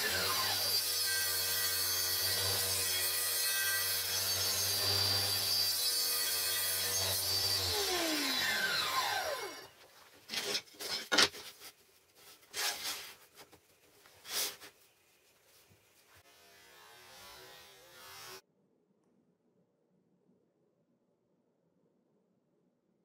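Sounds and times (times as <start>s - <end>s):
table saw running down: 7.4s - 9.8s.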